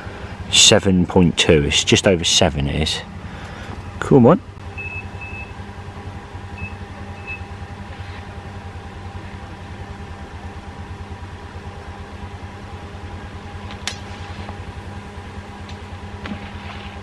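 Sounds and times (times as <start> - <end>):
motor humming with throb: 0.0 - 17.0
short high beeps: 4.8 - 5.5.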